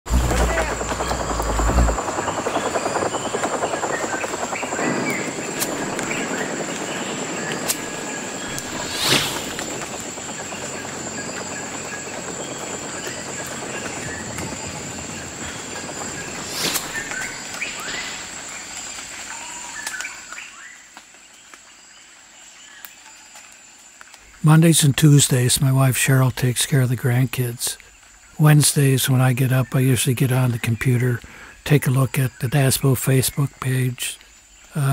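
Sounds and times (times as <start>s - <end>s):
bird chirps: 0.1s - 18.7s
steady wash of noise: 5.4s - 10.4s, 16.0s - 17.6s
sharp swooshes: 7.6s - 10.0s, 16.1s - 18.0s.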